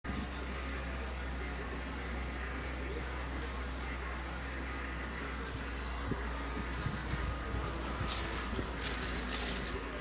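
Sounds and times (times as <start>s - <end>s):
low steady hum: 0.1s - 10.0s
music with steady beat: 0.1s - 10.0s.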